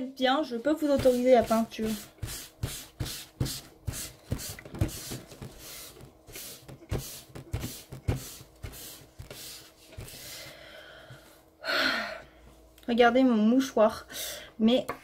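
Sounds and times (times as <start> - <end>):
tissue scrubbing pastel on paper: 0.6 - 10.2.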